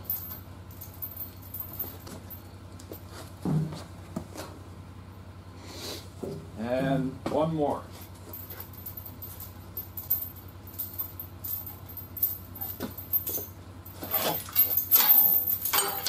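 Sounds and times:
chain rattling: 0.0 - 2.6, 8.0 - 16.0
steady low hum: 0.0 - 16.0.

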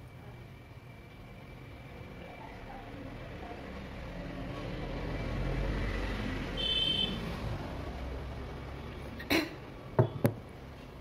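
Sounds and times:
vehicle passing rumble: 2.1 - 9.9.

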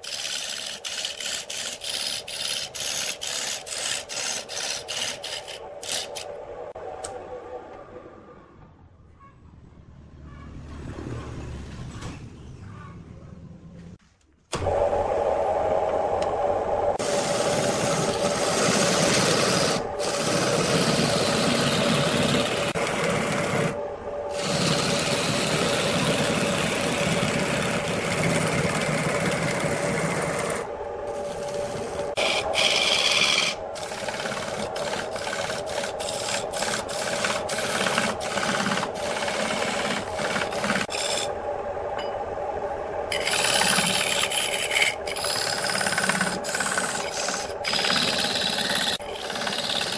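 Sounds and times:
sandpaper rasping on spinning wood: 0.0 - 6.2, 17.0 - 23.8, 24.4 - 41.3, 43.1 - 49.9
lathe motor hum: 14.6 - 49.9.

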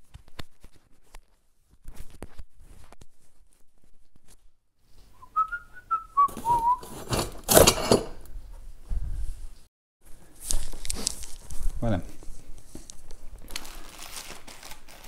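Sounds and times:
rustling and handling noise: 0.0 - 5.5, 6.2 - 15.0
person whistling: 5.1 - 6.9.

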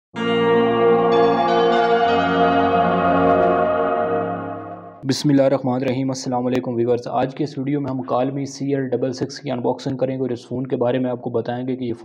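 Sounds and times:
sustained bell-like chord: 0.2 - 5.0.

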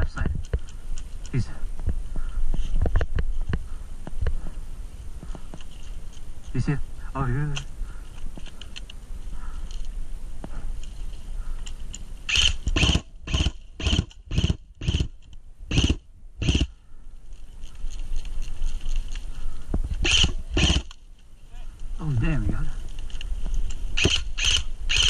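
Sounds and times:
airsoft rifle shots: 12.3 - 16.7, 20.0 - 20.9, 24.0 - 25.0.

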